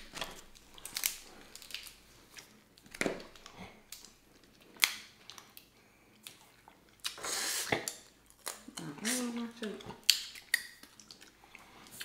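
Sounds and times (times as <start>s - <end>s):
crab shells cracking: 0.0s - 2.0s, 10.0s - 11.4s.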